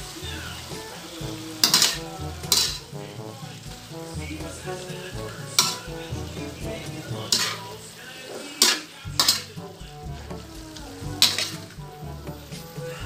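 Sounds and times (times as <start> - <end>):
food sizzling: 0.0 - 13.0
metal spatula scraping wok: 0.0 - 13.0.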